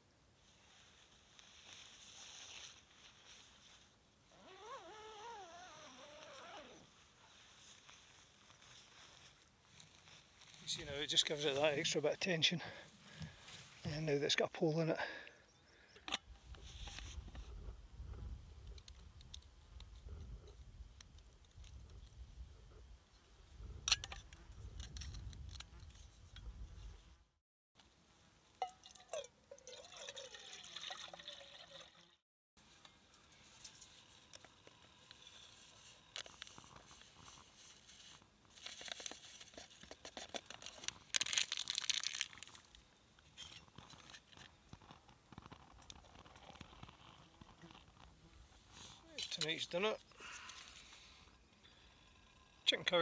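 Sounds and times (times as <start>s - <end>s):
water pouring and sloshing: 28.7s - 32.2s.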